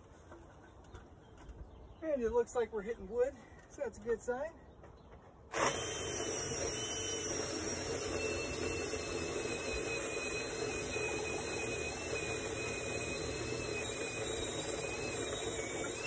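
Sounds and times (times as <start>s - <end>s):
cordless drill boring into wood: 5.5s - 16.0s.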